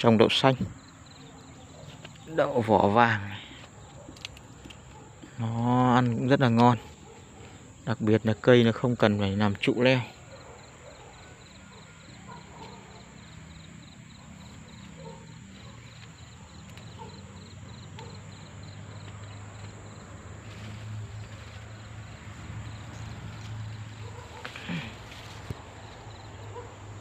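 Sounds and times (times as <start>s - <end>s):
rapid pulsed insect chirp: 0.0s - 27.0s
high-pitched insect whine: 0.7s - 2.2s, 9.9s - 26.6s.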